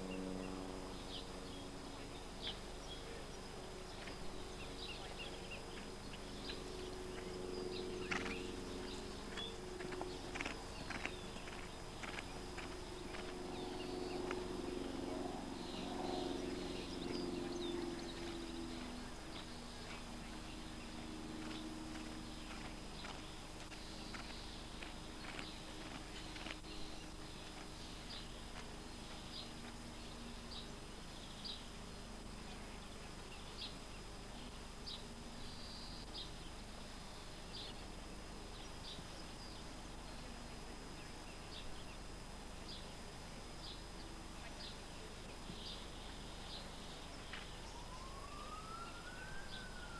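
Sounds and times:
birds chirping: 0.0 - 49.9
low hum: 0.0 - 49.9
horse hooves on grass: 3.9 - 14.9, 16.2 - 30.3.

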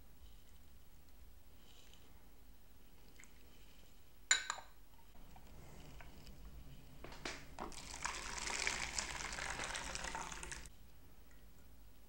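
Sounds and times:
porcelain clinks: 4.3 - 4.8
hot water pouring: 7.3 - 10.7.

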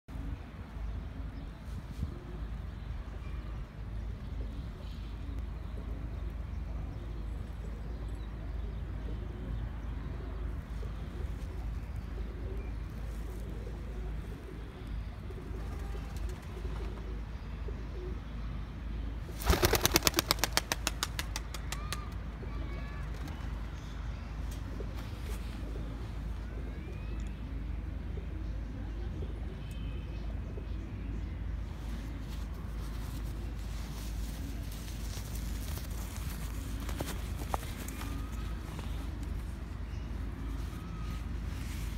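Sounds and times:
pigeon wings clapping: 19.4 - 22.2
low outdoor rumble: 20.6 - 41.9.

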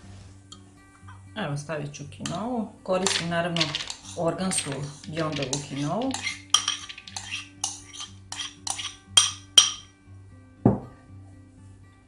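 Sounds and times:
metal spoon clinking on ceramic bowl: 3.0 - 9.9.

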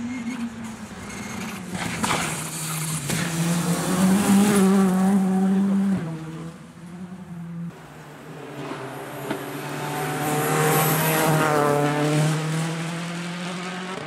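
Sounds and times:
rally car engine at high revs: 0.0 - 14.0.

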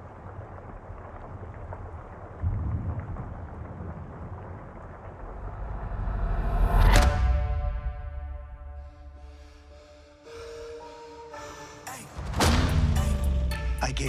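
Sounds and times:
low rumble: 0.0 - 10.0
deep boom: 12.2 - 14.0.

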